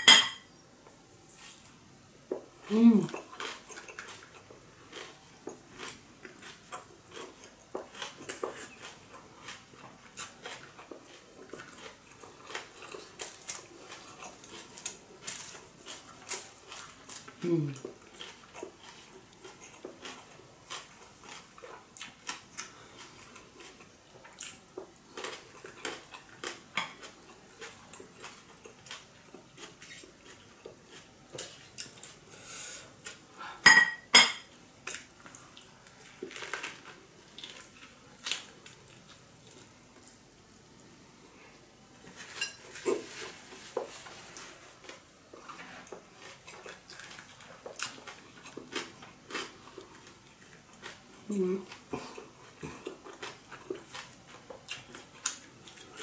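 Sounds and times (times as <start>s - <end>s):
dishes clattering: 0.0s - 0.5s, 33.7s - 34.5s
chewing spring roll: 2.7s - 32.3s, 34.8s - 40.6s, 42.1s - 56.0s.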